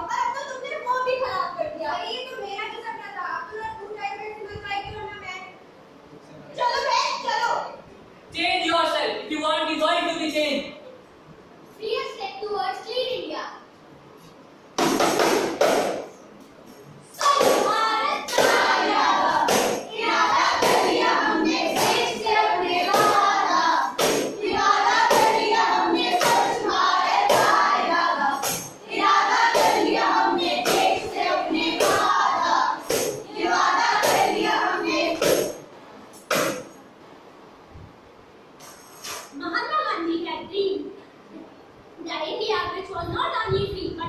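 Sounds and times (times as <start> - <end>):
young voices singing and chanting: 17.1 - 35.7.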